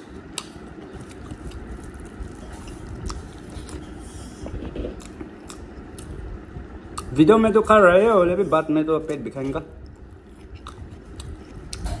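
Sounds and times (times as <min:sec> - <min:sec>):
low background rumble: 0:00.0 - 0:12.0
person chewing: 0:00.1 - 0:06.3, 0:06.9 - 0:07.2, 0:09.8 - 0:12.0.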